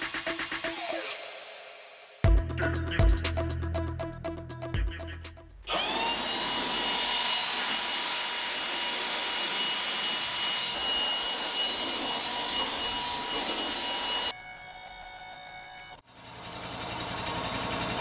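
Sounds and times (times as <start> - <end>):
electronic music: 0.0 - 5.7
leaf blower whining: 5.7 - 14.8.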